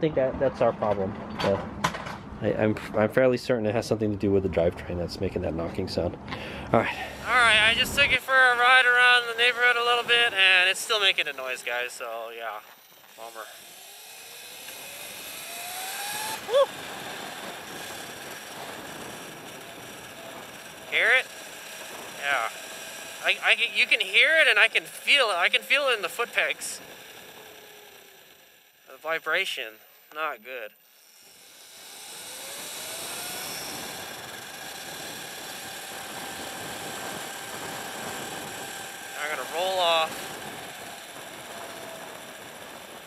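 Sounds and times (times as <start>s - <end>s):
road and wind noise: 0.0s - 12.0s, 12.6s - 28.8s, 31.1s - 43.0s
wind rushing over microphone: 4.9s - 8.2s, 32.7s - 43.0s
electric motor whining: 6.2s - 43.0s.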